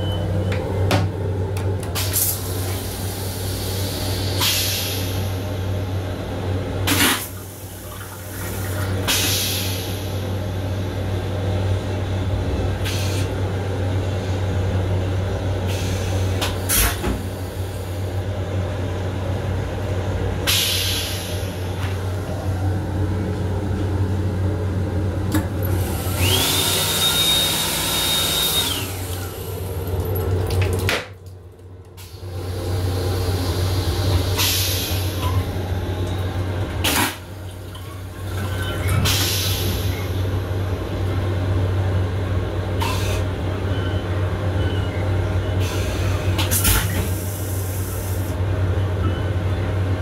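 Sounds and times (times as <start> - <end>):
low hum of railcar: 0.0 - 50.0
toilet flushing hiss: 6.9 - 10.3, 12.8 - 13.3, 25.6 - 31.0, 32.0 - 35.2.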